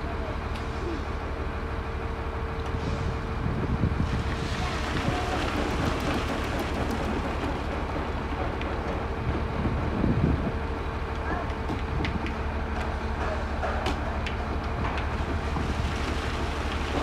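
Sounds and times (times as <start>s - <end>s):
machine humming and rumbling: 0.0s - 17.0s
wind buffeting microphone: 2.9s - 12.4s.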